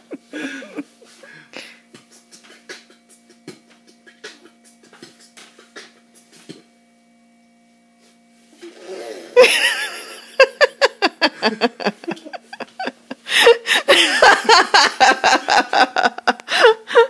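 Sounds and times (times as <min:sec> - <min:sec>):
man beatboxing: 0:01.9 - 0:06.7.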